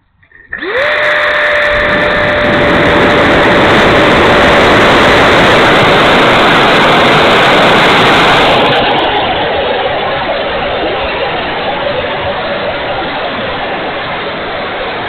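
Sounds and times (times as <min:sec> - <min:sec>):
electric ducted fan whine: 0:00.0 - 0:15.0
rush of air: 0:00.2 - 0:15.0.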